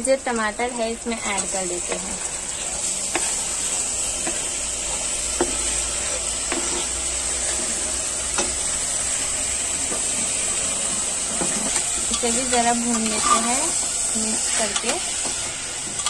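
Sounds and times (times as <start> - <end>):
food sizzling in hot oil: 0.0 - 16.0
stirring and scraping in pot: 1.3 - 9.0, 9.8 - 16.0.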